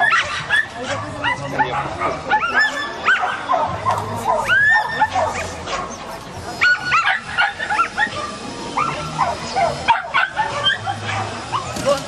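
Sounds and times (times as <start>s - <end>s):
dog yipping barks: 0.0s - 12.0s.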